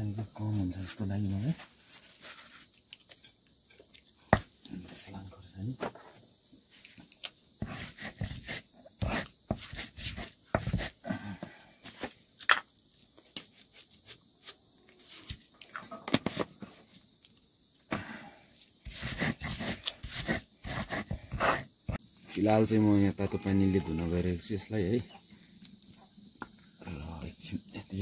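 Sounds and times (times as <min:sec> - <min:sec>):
stone knocking and scraping on stone: 0:07.6 - 0:11.0, 0:12.0 - 0:12.7.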